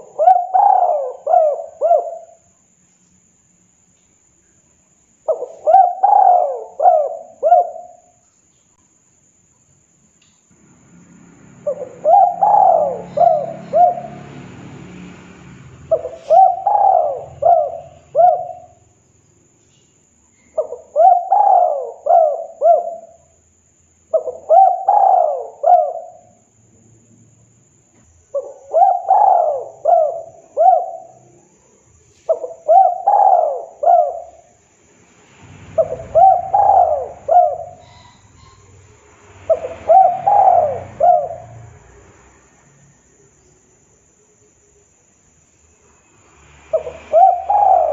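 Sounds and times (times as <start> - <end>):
dove cooing: 0.0 - 2.5, 5.3 - 8.1, 11.6 - 14.4, 15.9 - 18.9, 20.6 - 23.2, 24.1 - 26.3, 28.3 - 31.2, 32.3 - 34.6, 35.8 - 38.8, 39.5 - 41.7, 46.7 - 47.9.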